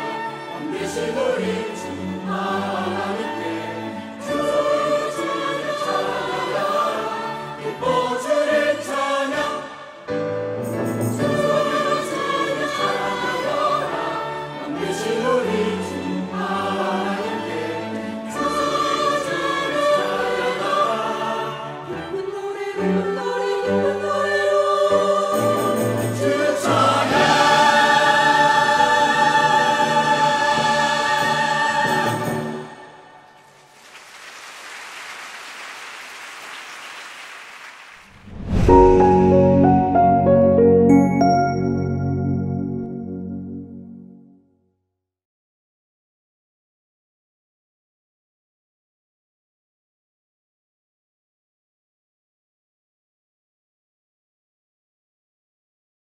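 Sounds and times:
choir singing an anthem: 0.0 - 33.4
orchestra playing: 38.4 - 44.2.

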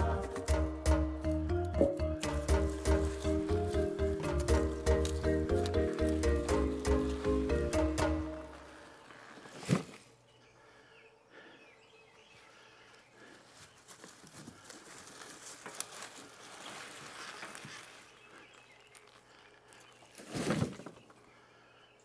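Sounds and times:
leafy stalks rustling: 2.2 - 10.2, 12.3 - 21.0
thump of stalks dropped in bin: 9.6 - 10.0, 20.2 - 20.9.

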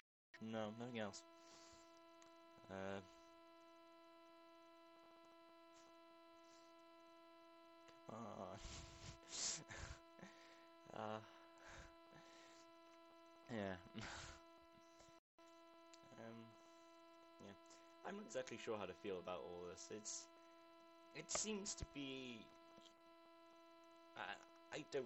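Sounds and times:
electrical hum: 0.4 - 25.0
person mumbling: 13.5 - 14.3.

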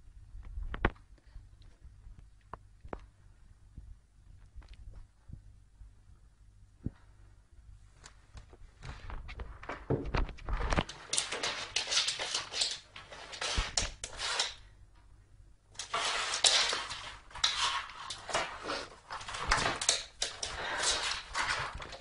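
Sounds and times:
cardboard box scraping on wooden floor: 15.8 - 19.8.

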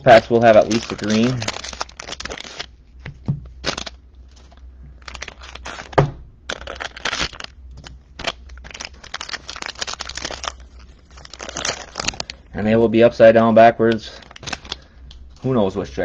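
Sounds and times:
plastic wrappers crinkling: 0.0 - 12.8, 13.8 - 15.5.

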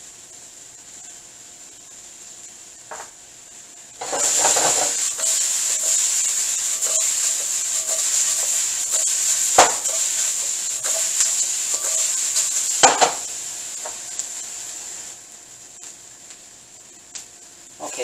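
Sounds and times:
food sizzling in a hot wok: 0.0 - 18.0
utensil scraping metal wok: 4.0 - 15.0.

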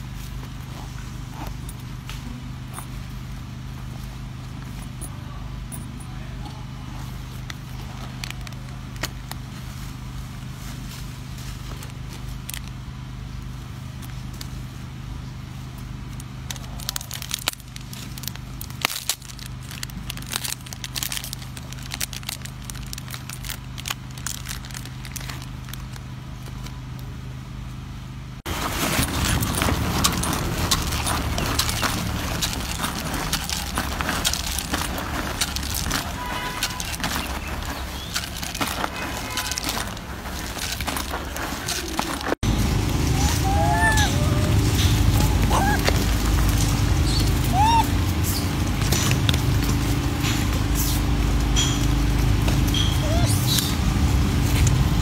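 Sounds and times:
rustling of cloth bag: 16.8 - 26.6, 28.5 - 51.1.

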